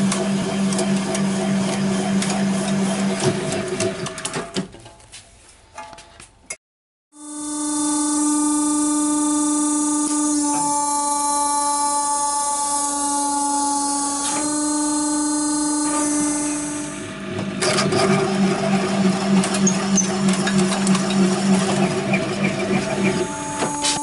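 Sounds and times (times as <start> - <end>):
machine running roughly: 0.0 - 4.4, 7.2 - 24.0
motor humming steadily: 7.2 - 24.0.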